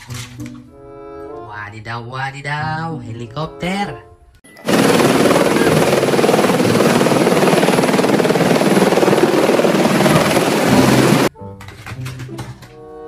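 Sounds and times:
helicopter hovering: 4.5 - 11.3.

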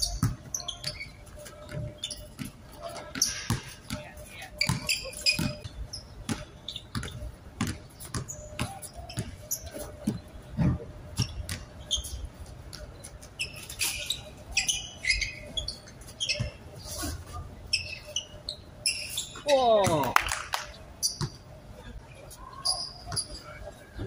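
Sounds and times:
basketball dribbling thuds: 0.0 - 1.0, 1.6 - 11.8
sneakers squeaking on court: 0.0 - 20.0, 21.0 - 21.6, 22.4 - 23.8.

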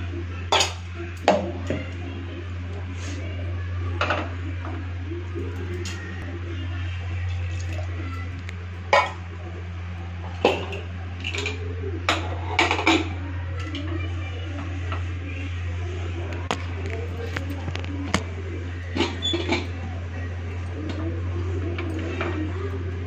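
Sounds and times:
steady low hum: 0.0 - 23.0
metal kitchen vessels clattering: 0.5 - 2.0, 8.9 - 9.3, 10.3 - 13.8, 18.9 - 19.8.

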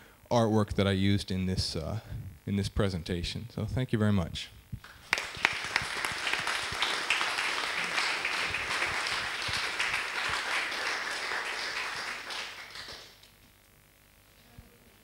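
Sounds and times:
audience applauding: 4.9 - 13.3.

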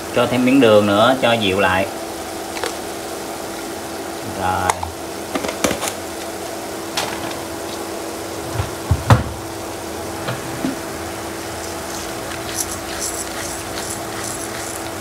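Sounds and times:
constant low hum: 1.6 - 15.0
vegetables sizzling in a pan: 9.6 - 15.0.

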